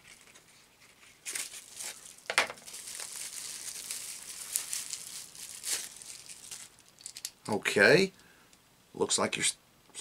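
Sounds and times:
packaging crinkling and tearing: 0.0 - 7.3.

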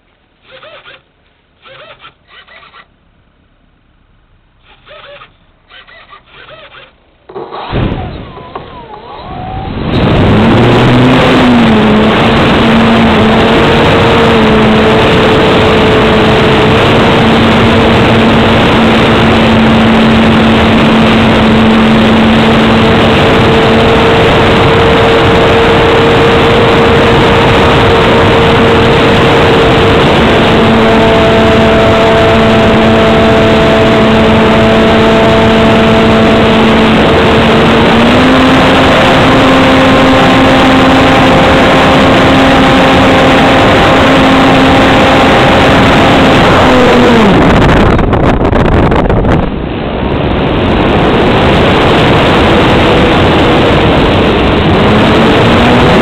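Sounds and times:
model plane motor droning: 0.4 - 2.9, 4.6 - 7.0
wind rushing over microphone: 7.7 - 56.0.

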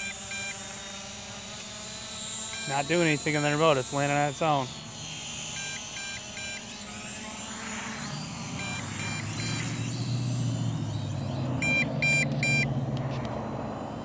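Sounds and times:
drone motors humming: 0.0 - 14.0
short electronic beeps: 8.5 - 10.2, 11.6 - 12.7.

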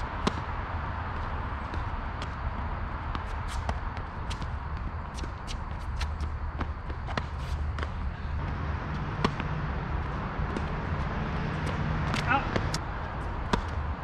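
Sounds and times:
steady low rumble: 0.0 - 14.0
tennis ball bouncing on court: 0.2 - 0.5, 3.1 - 12.8, 13.4 - 13.9
racket striking ball: 7.1 - 10.9, 11.5 - 12.8, 13.5 - 13.8.

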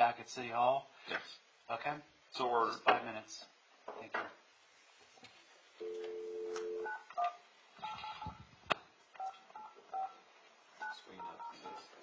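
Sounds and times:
telephone dial tone: 5.8 - 7.0.

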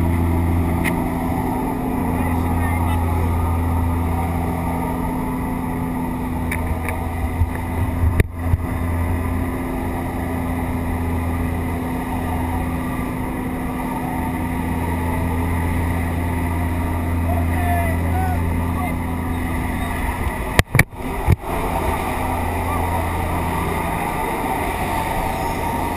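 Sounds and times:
plane engine and propeller drone: 0.0 - 25.9
rushing air: 18.4 - 25.9.

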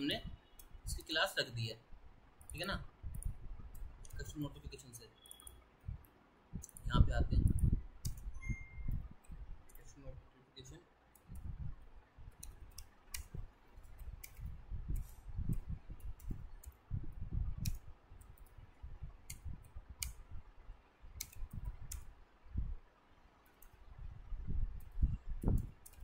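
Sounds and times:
computer keyboard typing: 12.3 - 16.8, 21.2 - 22.1, 24.8 - 26.0.

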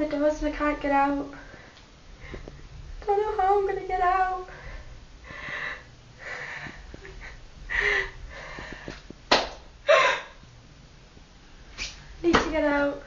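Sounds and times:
person gasping and sniffing: 9.9 - 10.4.

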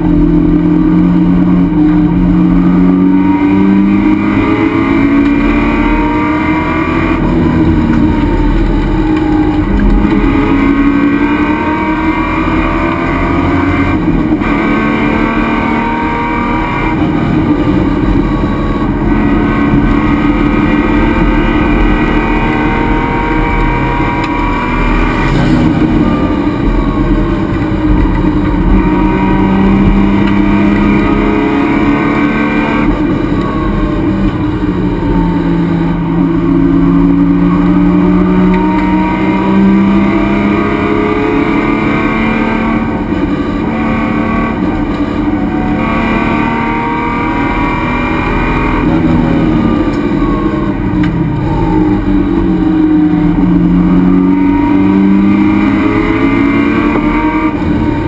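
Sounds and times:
race car engine under load: 0.0 - 58.0
road and wind noise: 0.0 - 58.0.

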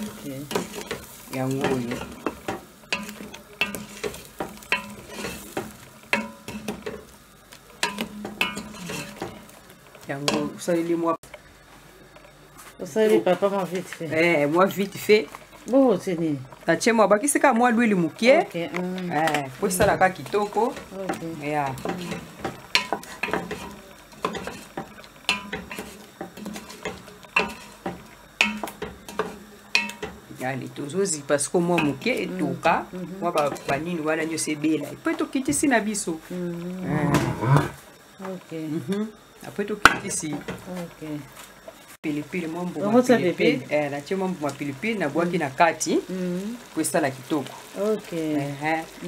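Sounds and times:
wooden spoon scraping a pot: 0.0 - 7.1, 7.8 - 10.5, 19.2 - 30.2
faint sizzle: 0.0 - 49.0.

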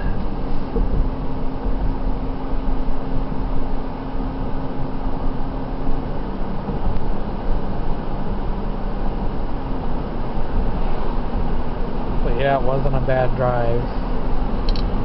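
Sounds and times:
road and engine rumble in car: 0.0 - 15.0.

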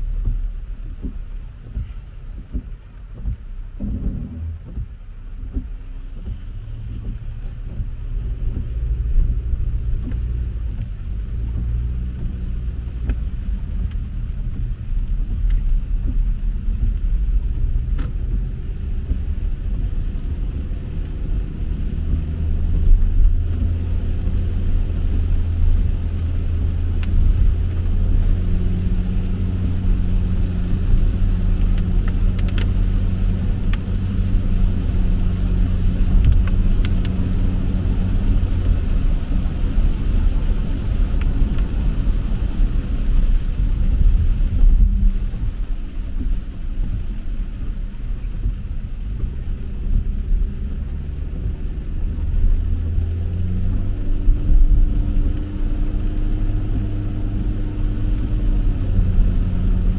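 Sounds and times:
car engine and tyres rumbling: 0.0 - 59.9
faint ticks: 0.2 - 21.5, 31.3 - 32.8.

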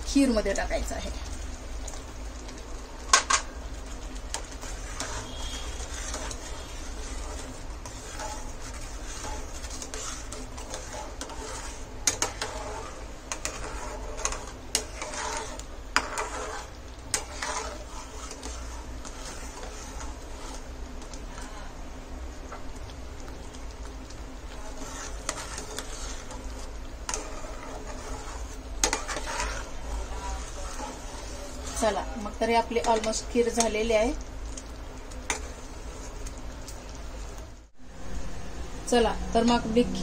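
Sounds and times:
metal spatula scraping pan: 4.2 - 21.8, 24.5 - 33.9, 35.3 - 36.2.

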